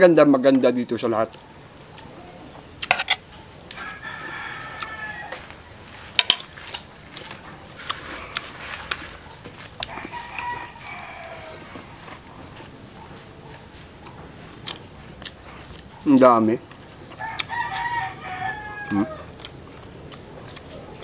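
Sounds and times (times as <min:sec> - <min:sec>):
rooster crowing: 0:03.7 - 0:05.8, 0:09.8 - 0:12.4, 0:17.1 - 0:19.4.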